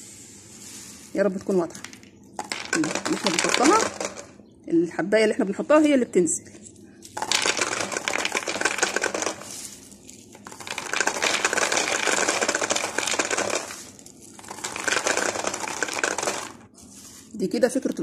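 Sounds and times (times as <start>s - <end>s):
dried beans clattering into bottle: 1.6s - 4.4s, 7.0s - 18.0s.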